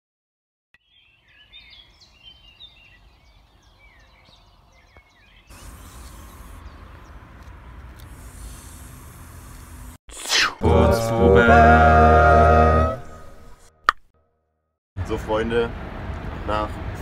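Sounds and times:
small birds chirping: 0:00.8 - 0:08.8.

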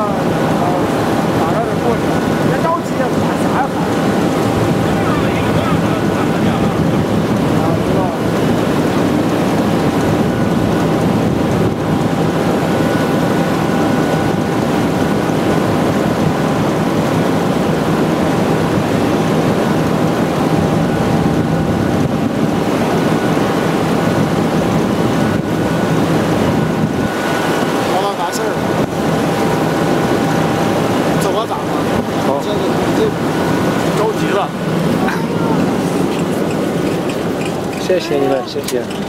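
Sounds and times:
molten metal pouring rush: 0:00.0 - 0:21.5.

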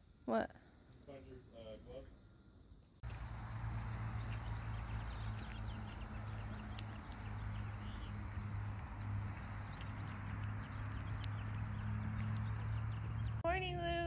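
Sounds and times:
constant rushing hiss: 0:03.0 - 0:13.4
steady low hum: 0:03.0 - 0:13.5
faint bird chirps: 0:03.8 - 0:11.8.

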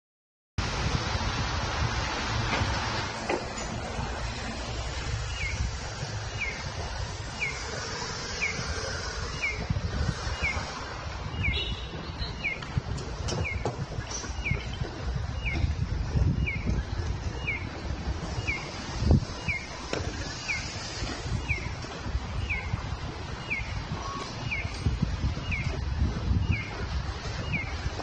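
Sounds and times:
low traffic rumble: 0:00.6 - 0:28.0
crossing signal chirping: 0:05.3 - 0:17.8, 0:18.4 - 0:26.8.

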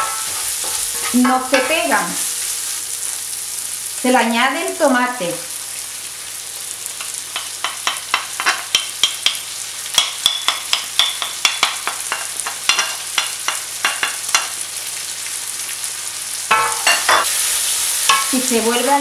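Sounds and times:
utensil knocking and scraping pan: 0:00.0 - 0:01.8
food sizzling in a pan: 0:00.0 - 0:19.0.

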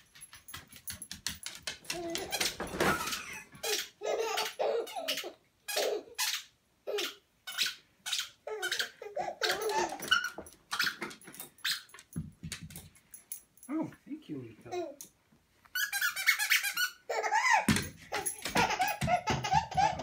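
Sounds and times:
babies laughing: 0:02.0 - 0:07.3, 0:08.1 - 0:11.0, 0:16.0 - 0:20.0
squeaky dog toy squeaking: 0:02.1 - 0:12.0, 0:15.7 - 0:20.0.

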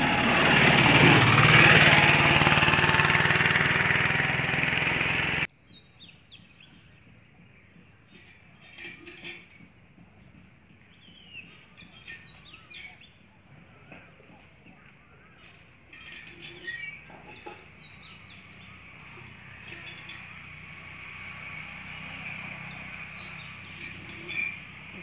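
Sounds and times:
birds chirping: 0:10.7 - 0:25.0.

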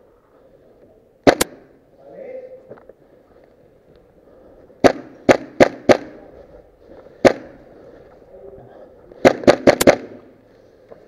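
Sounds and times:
airsoft rifle shots: 0:01.2 - 0:01.8, 0:04.8 - 0:06.2, 0:07.2 - 0:07.6, 0:09.2 - 0:10.3.

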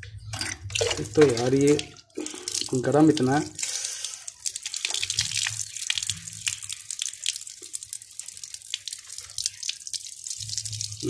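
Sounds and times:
tap water splashing on concrete: 0:00.8 - 0:03.8, 0:04.4 - 0:11.0.

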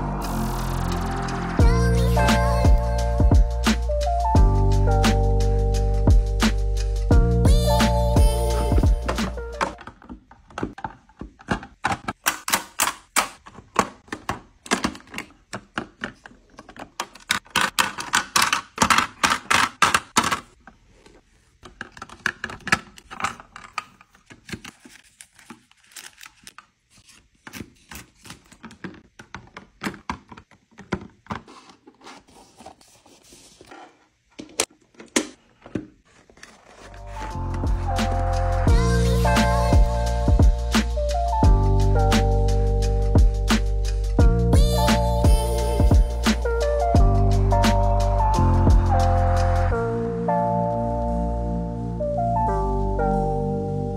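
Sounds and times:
plastic bins clicking and clattering: 0:08.8 - 0:32.8, 0:33.7 - 0:37.7.

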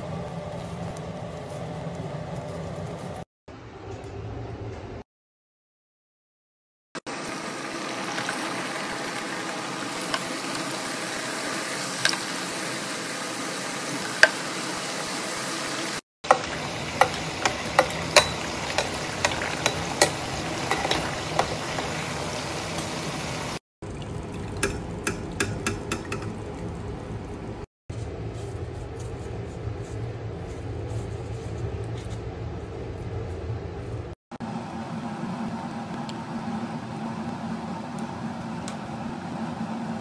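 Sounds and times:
oil sizzling with crackling pops: 0:16.2 - 0:23.6.

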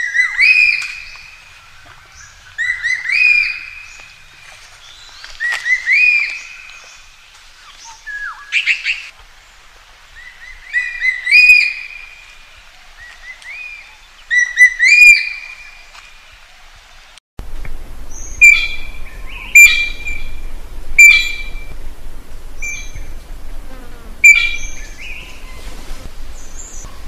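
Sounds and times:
magpie calling: 0:24.2 - 0:25.6.

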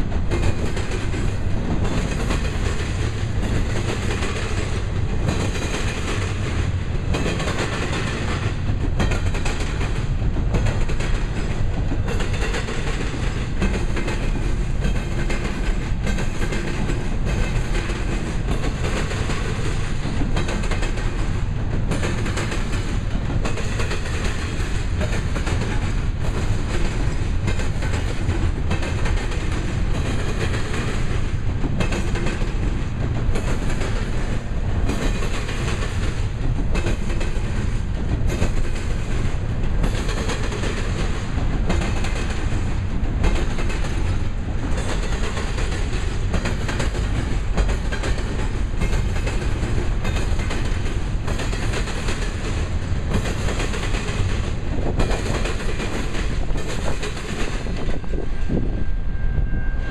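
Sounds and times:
wheels clicking over rail joints: 0:00.0 - 0:58.6
train wheels rumbling on rail: 0:00.0 - 0:59.9.

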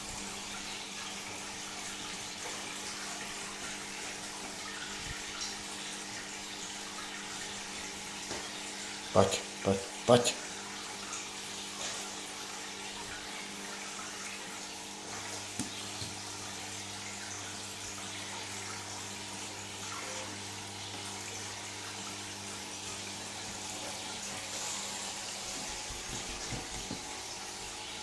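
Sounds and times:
aquarium aeration bubbling: 0:00.0 - 0:28.0.

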